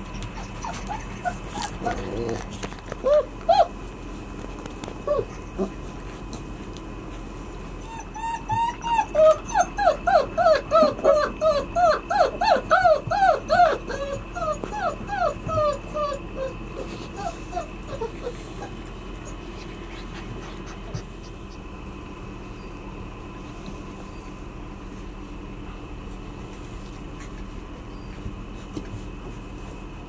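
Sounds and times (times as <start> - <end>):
puppies whining and yipping: 0.0 - 3.9, 4.9 - 5.9, 7.8 - 21.7, 27.2 - 28.6.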